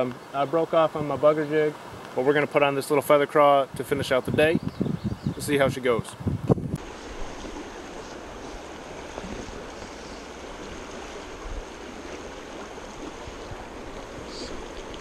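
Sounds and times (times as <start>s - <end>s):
water rushing over rocks: 6.6s - 15.0s.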